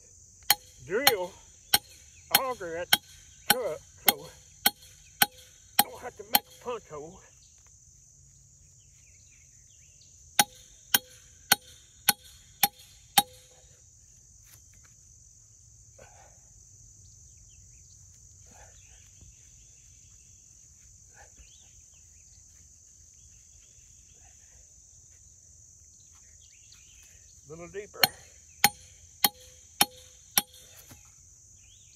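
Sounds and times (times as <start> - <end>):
insect drone: 0.0 - 31.9
hammer blows on metal punch: 0.5 - 6.6, 10.4 - 13.5, 28.0 - 30.7.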